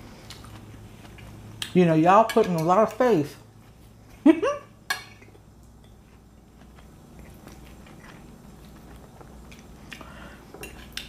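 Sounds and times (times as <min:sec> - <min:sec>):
person chewing food: 0:00.0 - 0:01.7, 0:05.2 - 0:11.0.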